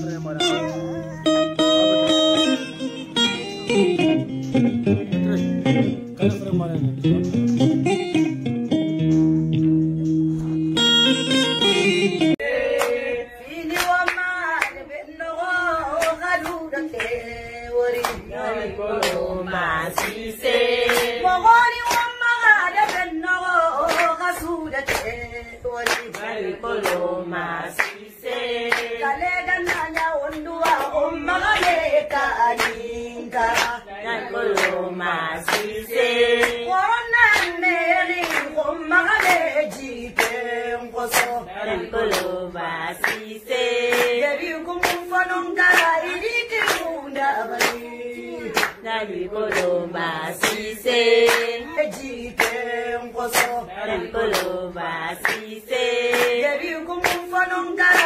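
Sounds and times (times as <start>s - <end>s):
hand claps: 7.2s - 10.6s, 12.8s - 13.0s, 13.6s - 14.8s, 15.9s - 17.2s, 19.0s - 19.2s, 19.9s - 23.2s, 23.8s - 25.2s, 25.8s - 27.1s, 27.7s - 32.8s, 33.5s - 33.8s, 34.4s - 34.8s, 35.4s - 41.4s, 42.0s - 42.4s, 43.0s - 48.8s, 49.4s - 49.8s, 50.4s - 54.6s, 55.2s - 58.0s
woman singing: 12.5s - 58.0s.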